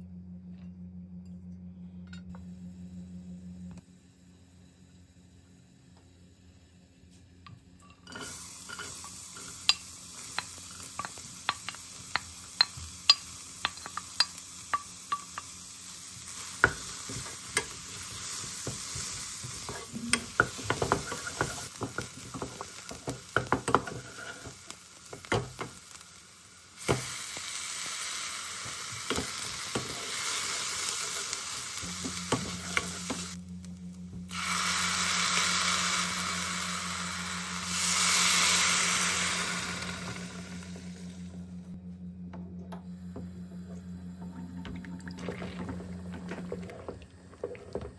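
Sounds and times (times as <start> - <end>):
vegetables sizzling in oil: 8.2 - 41.2.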